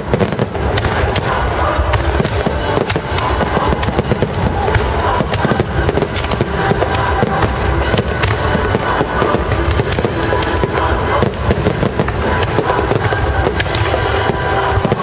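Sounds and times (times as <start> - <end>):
fireworks bursting and crackling: 0.0 - 15.0.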